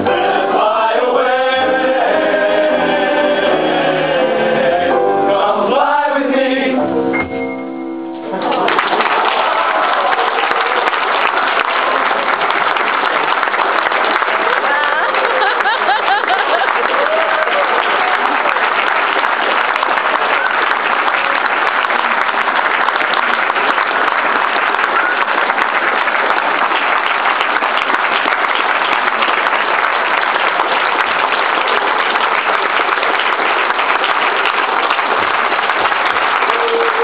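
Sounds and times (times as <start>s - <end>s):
audience applauding: 8.3s - 37.0s.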